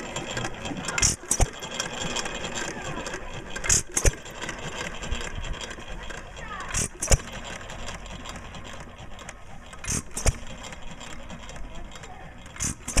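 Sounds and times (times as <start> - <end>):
hit-and-miss engine running: 0.0 - 13.0
engine firing with sharp double bang: 0.4 - 2.2, 3.5 - 4.6, 6.7 - 8.4, 9.1 - 11.4, 12.5 - 13.0.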